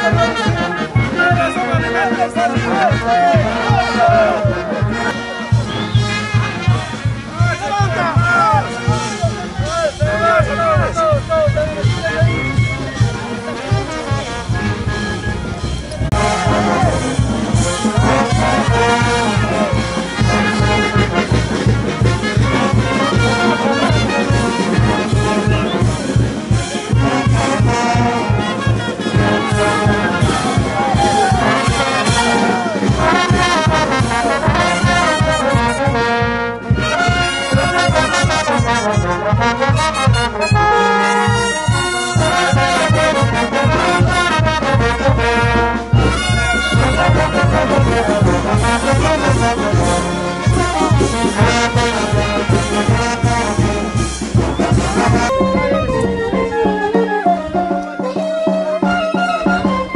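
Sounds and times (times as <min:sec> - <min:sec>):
brass band playing: 0:00.0 - 0:59.9
low steady beat: 0:54.8 - 0:58.2.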